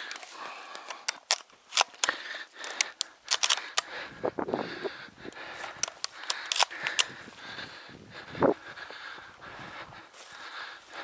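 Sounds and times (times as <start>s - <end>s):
footsteps through grass: 7.1s - 11.0s.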